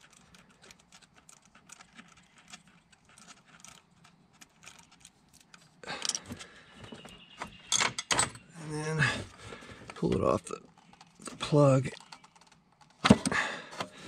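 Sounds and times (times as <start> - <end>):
rustling clatter: 0.0 - 7.2.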